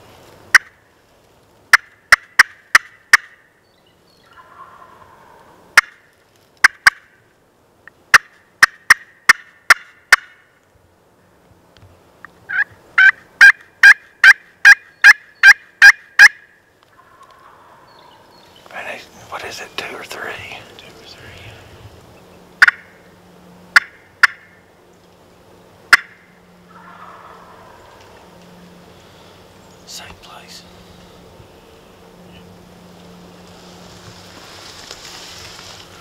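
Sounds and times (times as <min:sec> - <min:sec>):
turkey yelps and cutts: 0:04.3 - 0:06.0, 0:25.9 - 0:28.2
faint low sounds: 0:16.9 - 0:23.8.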